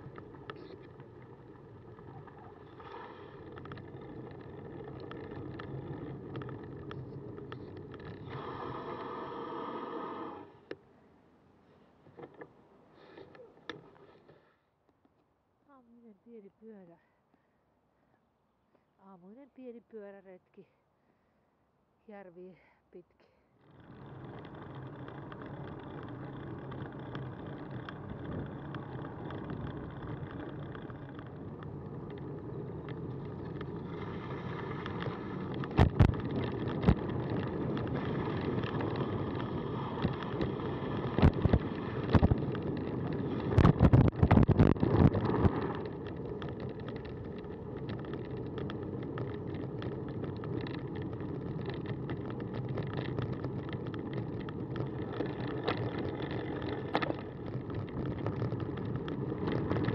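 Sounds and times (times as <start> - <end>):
bicycle knocking and rattling: 0.0 - 9.4, 23.6 - 59.9
bicycle tyres rolling: 0.0 - 15.5, 23.5 - 59.9
wind noise: 32.8 - 49.3.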